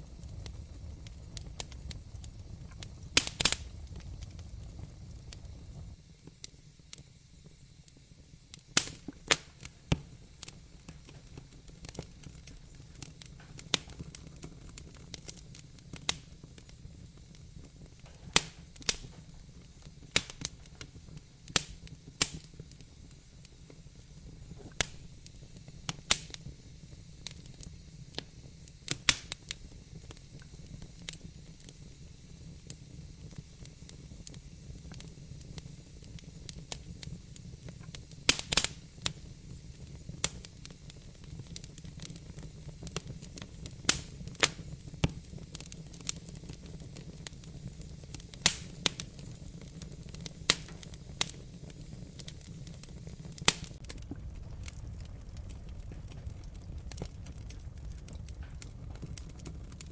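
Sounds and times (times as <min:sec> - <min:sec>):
low steady rumble: 0:00.0 - 0:06.0, 0:53.8 - 0:59.9
wood fire crackling: 0:00.0 - 0:07.0, 0:07.9 - 0:59.9.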